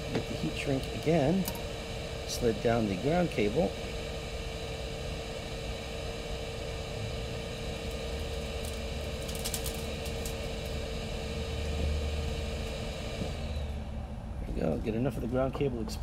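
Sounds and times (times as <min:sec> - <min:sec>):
constant mid-pitched tone: 0:00.0 - 0:16.0
workshop hum: 0:00.0 - 0:16.0
wire clicking and rustling: 0:08.3 - 0:10.8.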